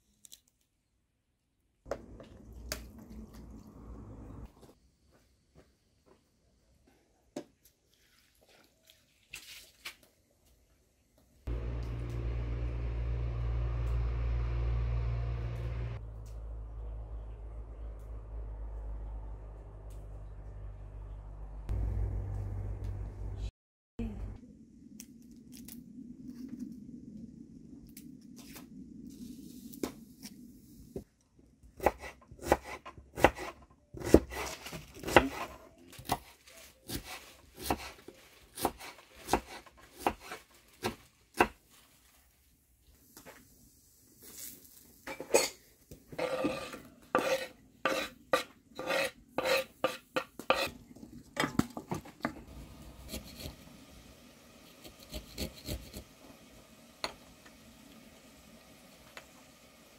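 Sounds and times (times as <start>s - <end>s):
knife chopping on wooden board: 36.9s - 38.0s.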